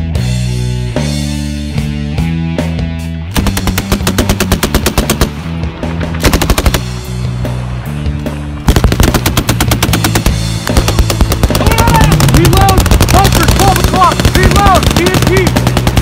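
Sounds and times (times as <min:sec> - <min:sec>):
rock music: 0:00.0 - 0:16.0
machine gun bursts: 0:03.4 - 0:05.3, 0:06.2 - 0:06.8, 0:08.7 - 0:16.0.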